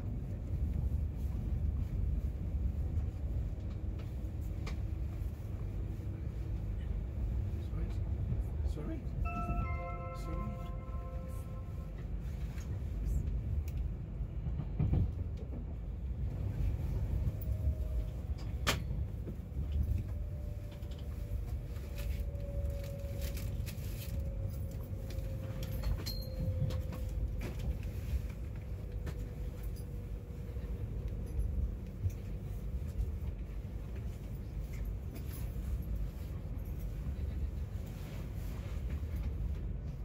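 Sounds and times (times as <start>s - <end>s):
train wheels rumbling on rails: 0.0s - 40.0s.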